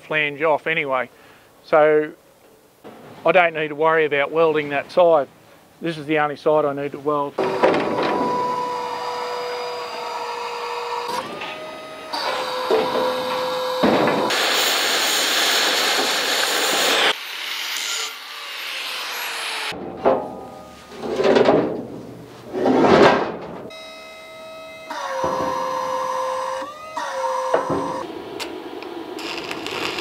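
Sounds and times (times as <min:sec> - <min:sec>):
hydraulic crane pump whining: 0:07.4 - 0:17.2, 0:23.7 - 0:30.0
arc welding crackling and hissing: 0:12.3 - 0:17.3, 0:28.4 - 0:30.0.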